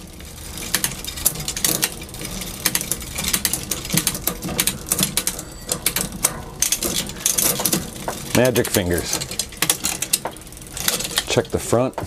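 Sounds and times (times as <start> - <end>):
bicycle chain ticking and clattering: 0.0 - 12.0
shifter and derailleur clicks: 0.0 - 12.0.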